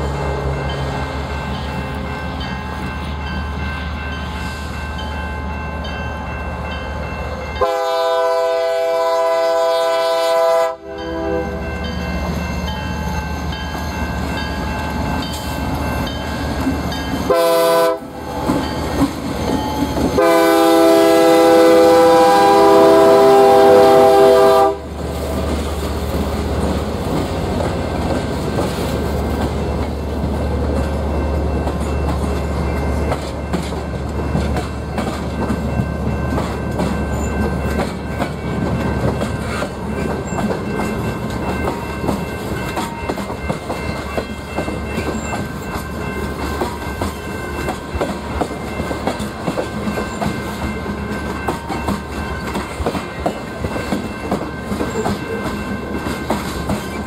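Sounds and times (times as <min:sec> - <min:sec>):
diesel locomotive engine rumbling: 0:00.0 - 0:57.0
train air horn blasts: 0:07.6 - 0:11.6, 0:17.3 - 0:18.2, 0:20.2 - 0:24.9.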